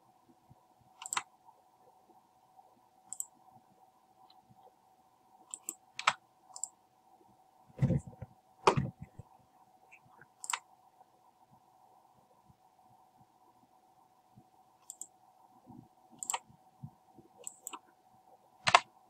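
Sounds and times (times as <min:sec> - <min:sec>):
faint steady hum: 0:00.0 - 0:19.0
computer mouse clicks: 0:01.0 - 0:01.3, 0:03.1 - 0:03.3, 0:05.5 - 0:06.8, 0:10.4 - 0:10.7, 0:14.8 - 0:15.1, 0:16.2 - 0:16.5, 0:17.4 - 0:17.8, 0:18.7 - 0:18.9
keyboard key presses: 0:01.0 - 0:01.3, 0:18.6 - 0:18.9.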